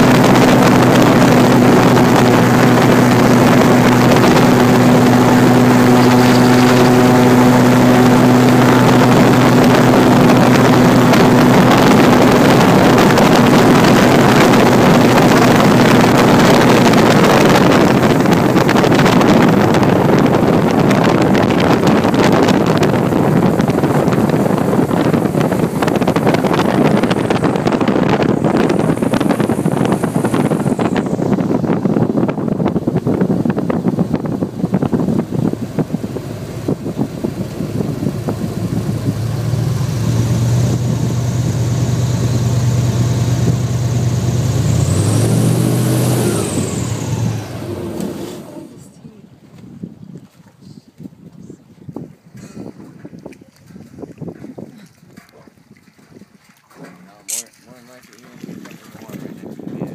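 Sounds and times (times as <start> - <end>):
rushing noise: 0.0 - 36.6
airboat engine drone: 0.0 - 49.4
wind on microphone: 0.0 - 59.9.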